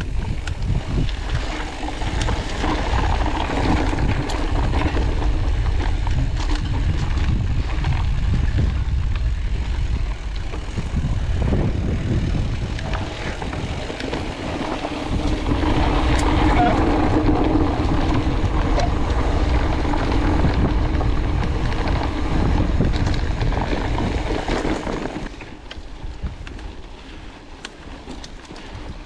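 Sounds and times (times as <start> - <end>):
bike clicks and rattles: 0.0 - 29.0
tyres humming on dirt trail: 0.0 - 29.0
wind rumbling on microphone: 0.0 - 29.0.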